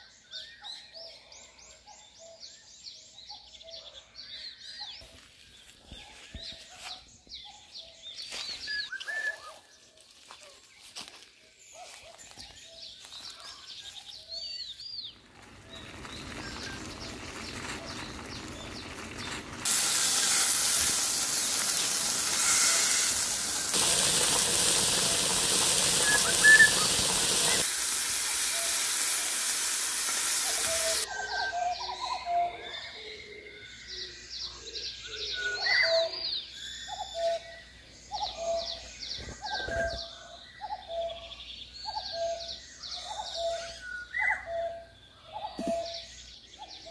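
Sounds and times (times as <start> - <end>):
birds chirping: 10.8 - 31.1
stew boiling with loud hiss: 15.6 - 31.1.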